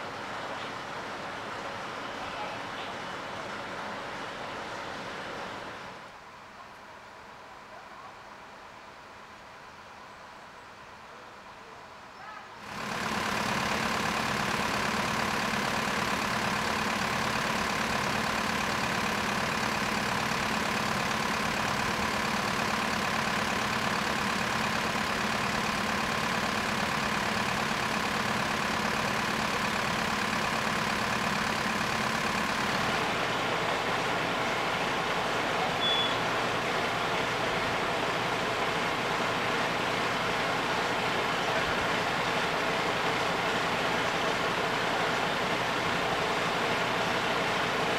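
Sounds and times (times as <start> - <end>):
diesel engine humming: 12.6 - 47.9.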